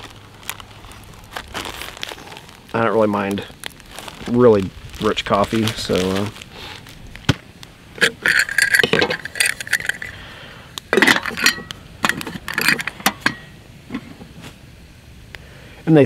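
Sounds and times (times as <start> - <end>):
metal lid clinking on pot: 8.0 - 10.1, 10.9 - 13.5.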